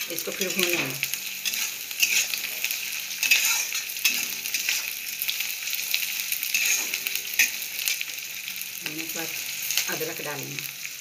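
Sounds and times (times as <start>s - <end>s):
vegetables sizzling in hot oil: 0.0s - 11.0s
metal spatula scraping pan: 0.3s - 8.0s.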